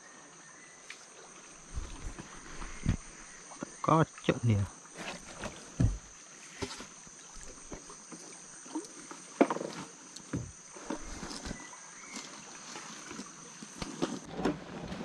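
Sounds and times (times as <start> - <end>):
high insect drone: 0.0 - 14.3
fishing net rustling: 1.5 - 3.4, 5.0 - 7.9, 10.7 - 15.0
knocks and thumps on a boat: 1.7 - 3.4, 5.3 - 6.1, 9.4 - 11.5.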